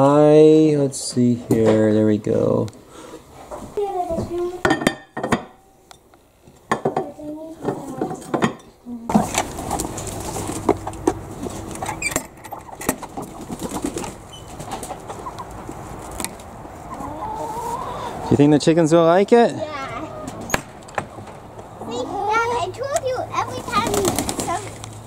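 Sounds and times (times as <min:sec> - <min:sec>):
hens clucking: 0:09.1 - 0:25.0.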